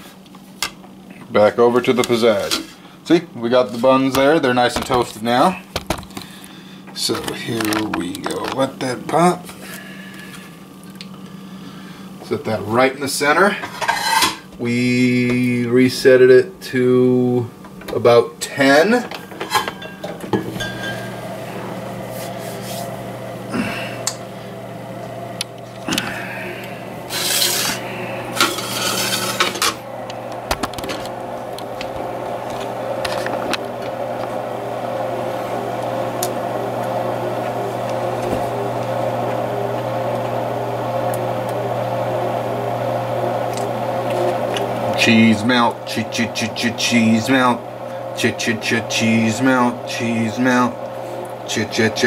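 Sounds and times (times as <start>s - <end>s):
high steady whine: 0.0s - 52.0s
pizza oven motor humming: 0.0s - 52.0s
rubbing and scraping handling noise: 13.6s - 14.5s, 19.2s - 23.1s, 27.1s - 29.8s.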